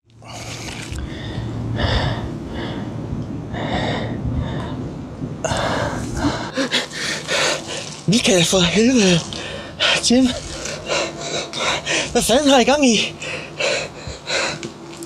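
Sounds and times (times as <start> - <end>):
low hum: 0.0 - 15.0
man gasping and wheezing: 0.2 - 8.0, 9.2 - 12.2, 13.1 - 14.7.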